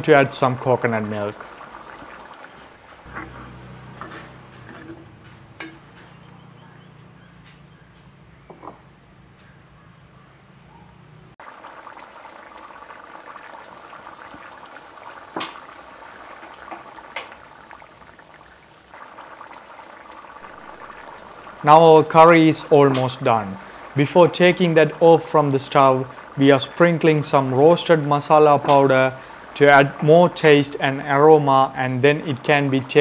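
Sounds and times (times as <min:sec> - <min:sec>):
curry bubbling in a pot: 0:00.0 - 0:05.1, 0:11.4 - 0:33.0
low hum: 0:03.0 - 0:12.0
metal ladle clicking on pot: 0:05.6 - 0:05.8.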